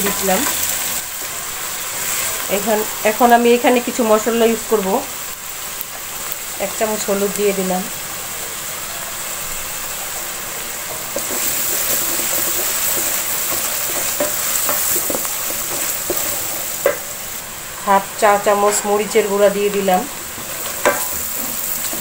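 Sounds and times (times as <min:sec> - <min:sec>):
onions sizzling in hot oil: 0:00.0 - 0:22.0
wooden spatula scraping a pot: 0:10.9 - 0:17.0.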